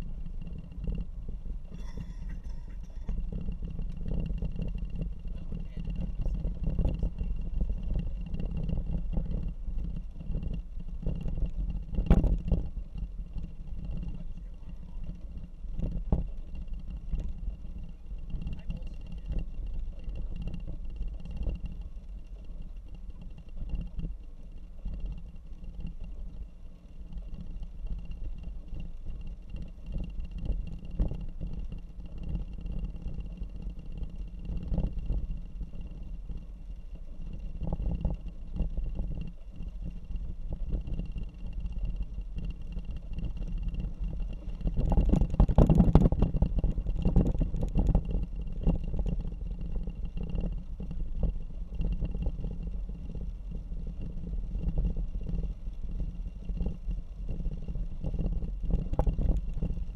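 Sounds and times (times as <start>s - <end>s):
car driving rumble: 0.0s - 59.9s.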